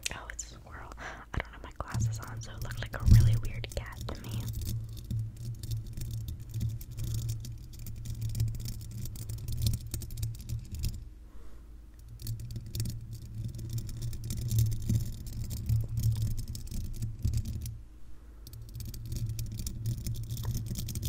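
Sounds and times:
low rumble: 0:00.1 - 0:05.4
metal scratching on microphone grille: 0:01.6 - 0:11.0.

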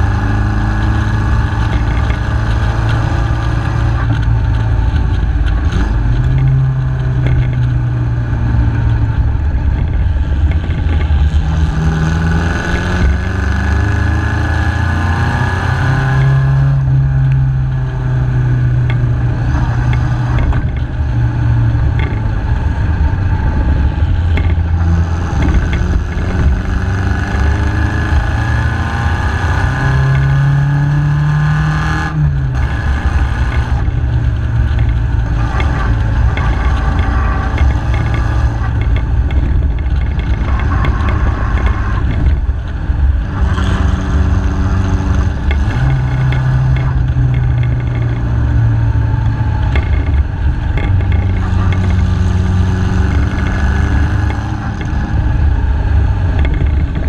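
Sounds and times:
car engine running: 0:00.0 - 0:57.0.

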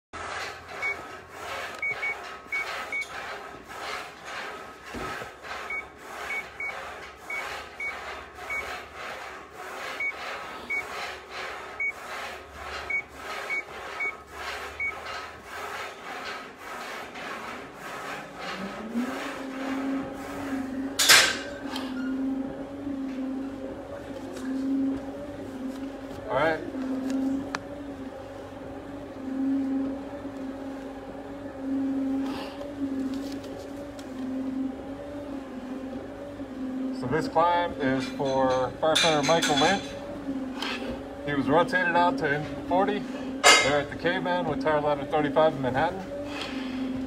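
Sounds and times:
rasping breathing through regulator: 0:46.1 - 0:47.0.

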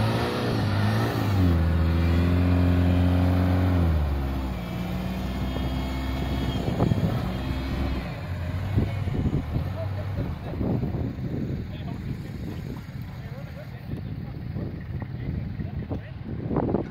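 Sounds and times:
pickup engine revving in mud: 0:00.0 - 0:10.9.

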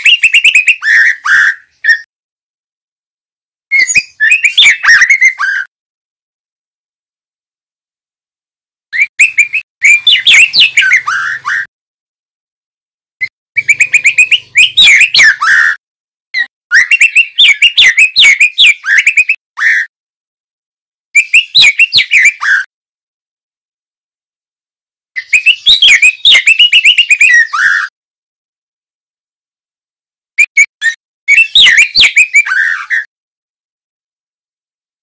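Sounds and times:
bird singing whistled notes: 0:00.0 - 0:02.1, 0:03.7 - 0:05.7, 0:09.0 - 0:11.7, 0:13.6 - 0:15.8, 0:16.4 - 0:19.9, 0:21.2 - 0:22.7, 0:25.2 - 0:27.9, 0:30.4 - 0:33.1.

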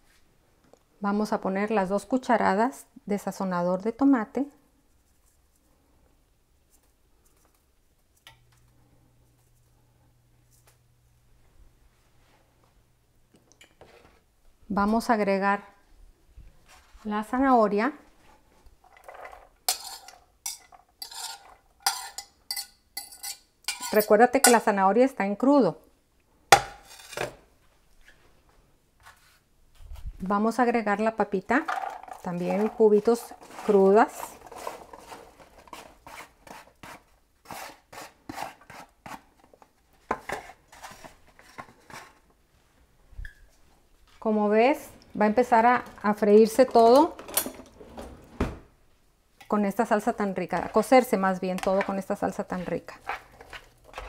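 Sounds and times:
spoon scraping cookware: 0:18.9 - 0:24.7, 0:26.8 - 0:27.3, 0:50.5 - 0:54.0.

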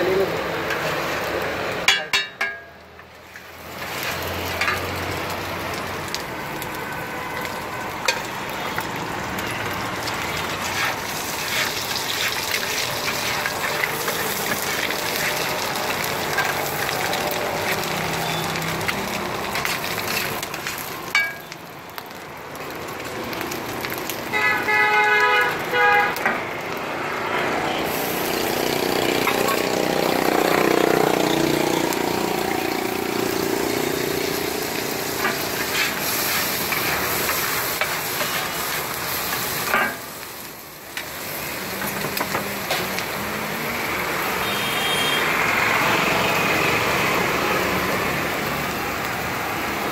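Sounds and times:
egg sizzling on a griddle: 0:00.0 - 0:49.9
street traffic: 0:00.0 - 0:49.9
metal spatula scraping and tapping: 0:01.9 - 0:02.7, 0:03.3 - 0:04.9
vehicle horn honking: 0:24.3 - 0:26.1, 0:44.4 - 0:45.3.

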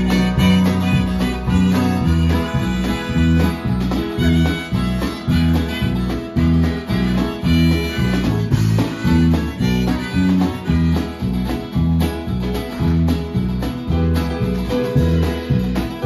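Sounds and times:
harmonica sustained notes: 0:00.0 - 0:12.3
electric bass: 0:00.0 - 0:16.0
strummed acoustic guitar: 0:00.0 - 0:16.0.

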